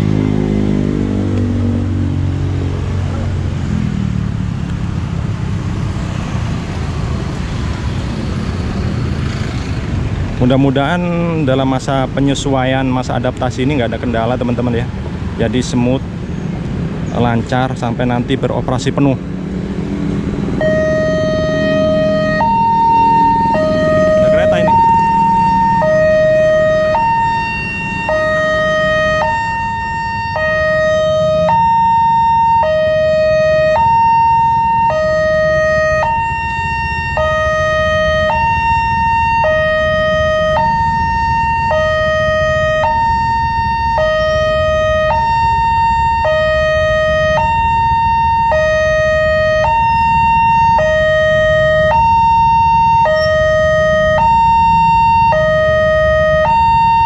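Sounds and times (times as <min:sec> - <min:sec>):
low traffic rumble: 0:00.0 - 0:57.0
level-crossing alarm two tones: 0:20.6 - 0:57.0.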